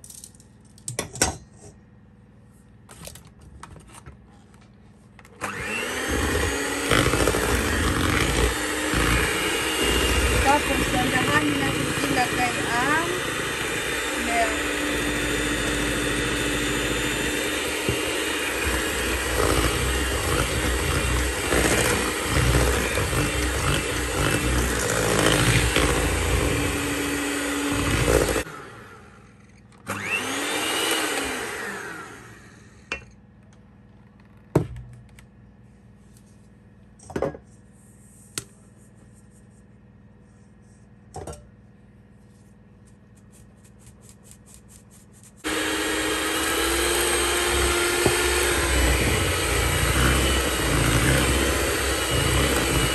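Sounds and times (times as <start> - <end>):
electric hand mixer running: 5.4 - 32.8, 45.4 - 52.9.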